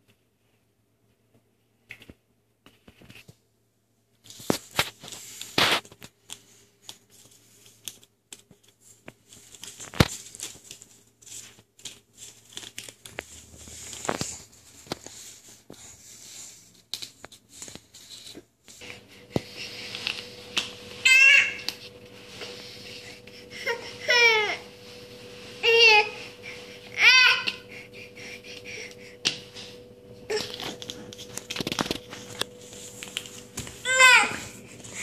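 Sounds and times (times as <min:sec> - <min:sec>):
baby crying: 0:21.0 - 0:21.7, 0:23.5 - 0:24.7, 0:26.9 - 0:27.6, 0:33.8 - 0:34.6.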